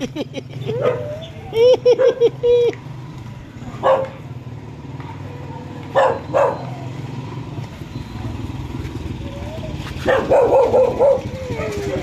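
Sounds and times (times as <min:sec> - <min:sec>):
dog barking: 0:00.8 - 0:01.2, 0:03.8 - 0:04.2, 0:05.9 - 0:06.7, 0:10.0 - 0:11.8.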